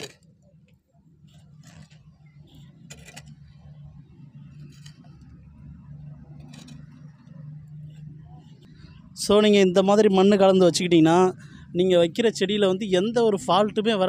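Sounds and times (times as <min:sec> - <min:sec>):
shovel scraping gritty soil: 0:00.0 - 0:00.2
steady low hum: 0:00.0 - 0:14.0.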